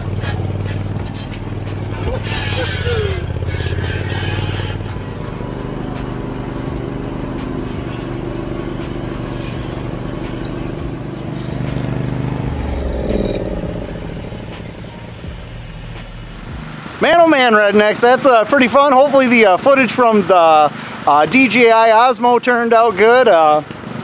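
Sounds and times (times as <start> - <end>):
garden tractor engine running: 0.0 - 24.0.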